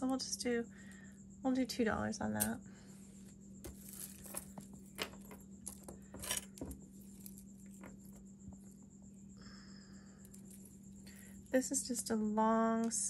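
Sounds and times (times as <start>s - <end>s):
faint steady hum: 0.0s - 13.0s
jewelry clinking and rattling: 3.6s - 8.8s, 10.2s - 11.7s.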